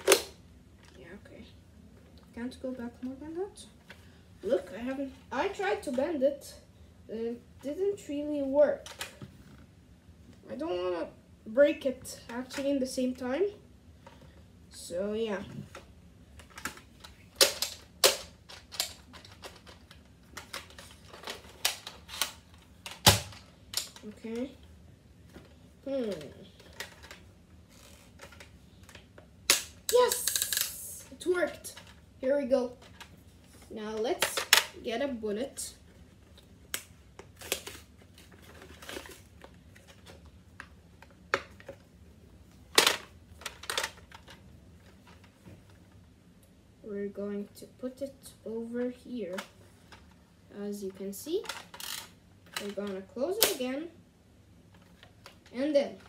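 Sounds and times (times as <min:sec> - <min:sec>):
toy blaster plastic clicks: 0:29.5 - 0:30.8, 0:51.4 - 0:52.7.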